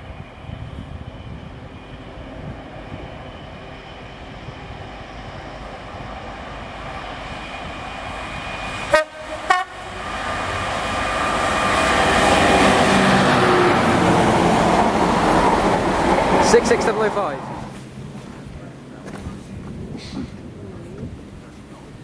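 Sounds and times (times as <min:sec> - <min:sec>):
diesel locomotive engine: 0:00.0 - 0:22.0
freight wagons rumbling: 0:08.0 - 0:22.0
train horn blasts: 0:08.9 - 0:10.0.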